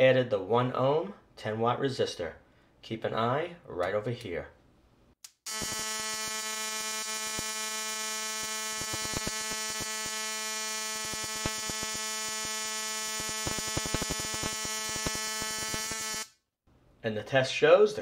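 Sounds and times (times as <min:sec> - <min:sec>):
sharp spark snaps: 0:05.2 - 0:07.6, 0:08.3 - 0:16.4
electrical spark buzzing: 0:05.3 - 0:16.4.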